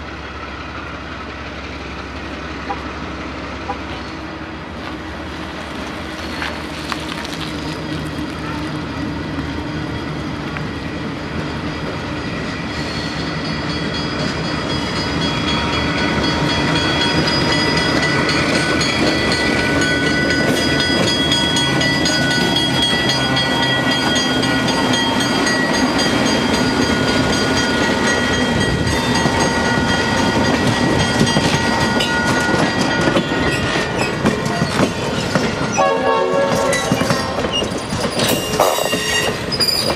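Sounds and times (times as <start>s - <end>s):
locomotive engine rumble: 0.0s - 39.9s
train wheels squealing: 7.7s - 35.9s, 36.6s - 39.9s.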